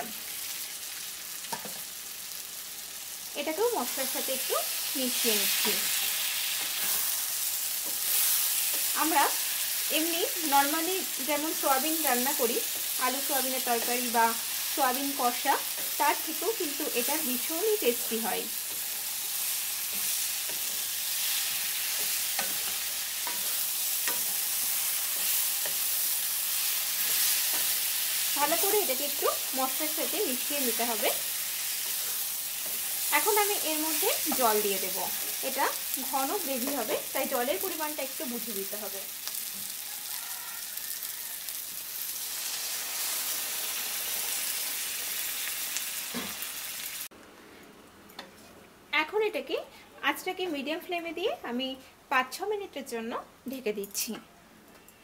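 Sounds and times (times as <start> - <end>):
frying sizzle: 0.0 - 47.1
spatula scraping a pan: 5.7 - 8.9, 18.1 - 28.3.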